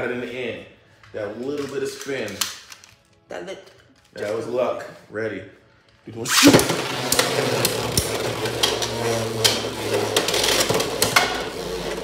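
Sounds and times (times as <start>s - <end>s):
spinning tops whirring: 6.3s - 12.0s.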